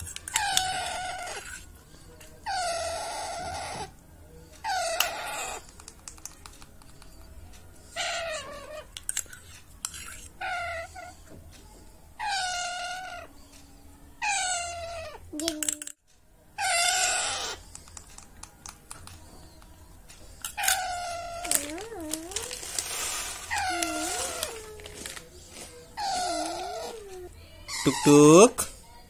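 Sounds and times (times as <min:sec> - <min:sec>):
parakeet begging calls: 0:27.7 - 0:28.3.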